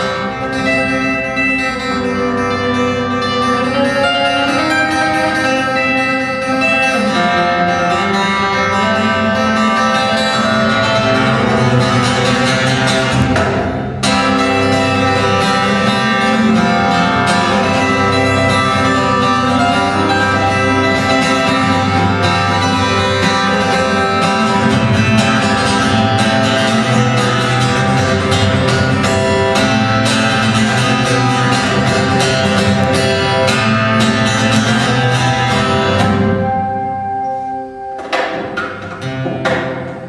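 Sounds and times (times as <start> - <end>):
acoustic guitar playing: 0.0 - 40.0.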